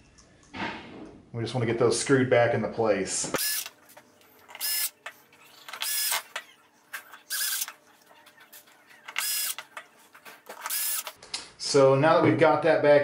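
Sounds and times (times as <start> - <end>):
electric screwdriver whirring: 3.4 - 3.8, 4.5 - 6.5, 7.1 - 7.8, 8.5 - 11.2.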